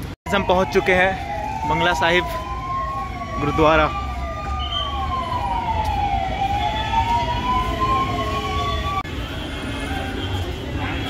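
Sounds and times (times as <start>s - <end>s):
fast falling siren sweeps: 0.3s - 9.0s
siren wailing: 0.3s - 9.1s.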